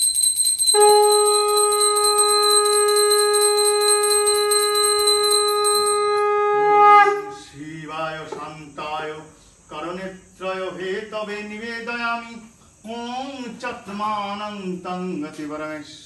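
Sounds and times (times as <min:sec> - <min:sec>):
hand bell ringing rapidly: 0:00.0 - 0:06.2
conch shell blown: 0:00.6 - 0:07.5.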